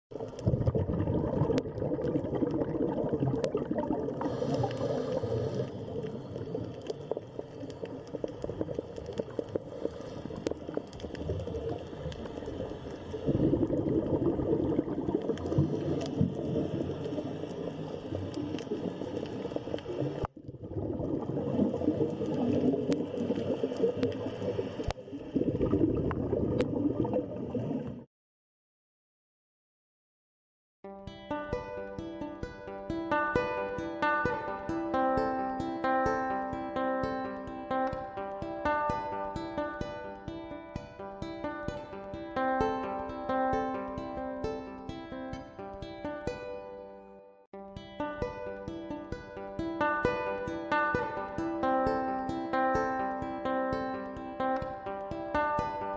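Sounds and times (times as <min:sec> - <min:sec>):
underwater gurgling and bubbling: 0:00.2 - 0:28.0.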